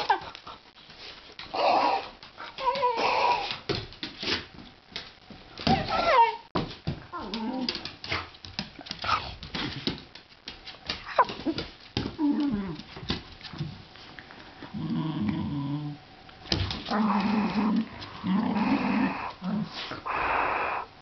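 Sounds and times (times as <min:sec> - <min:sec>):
dog play-growling: 0:07.1 - 0:09.9, 0:11.1 - 0:13.6, 0:14.6 - 0:20.4.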